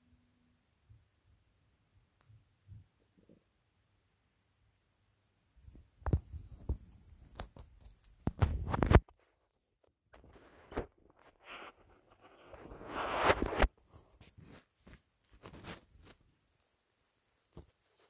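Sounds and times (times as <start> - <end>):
fabric rustling: 6.1 - 18.0.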